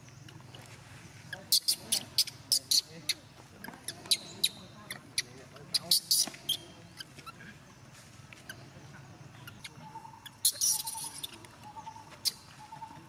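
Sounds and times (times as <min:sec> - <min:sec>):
baby monkey squeaking: 0:01.3 - 0:07.4, 0:09.4 - 0:13.0.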